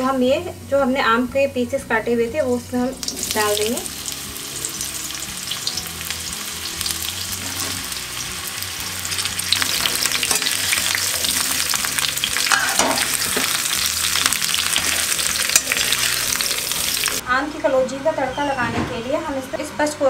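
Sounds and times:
mango slices sizzling in oil: 0.0s - 17.2s.

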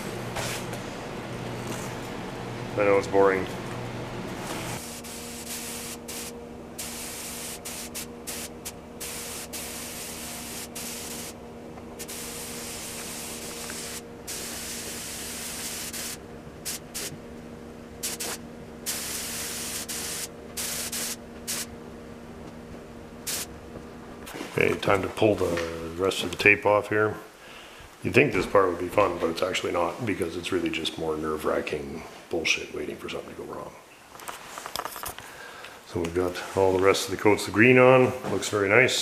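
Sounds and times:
steady low hum: 0.0s - 39.0s
paint spray gun hissing: 4.8s - 11.4s, 12.0s - 17.2s, 18.0s - 21.7s, 23.2s - 23.5s.

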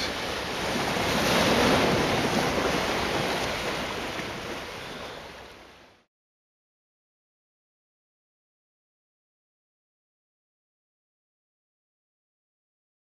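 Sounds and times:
ocean surf on rocky shore: 0.0s - 6.1s.

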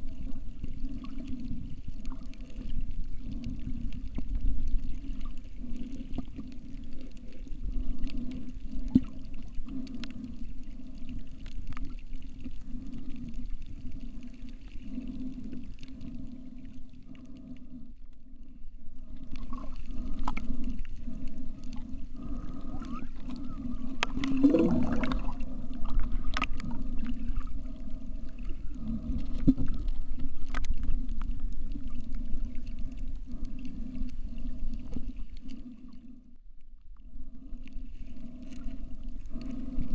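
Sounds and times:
underwater low hum: 0.0s - 39.9s.

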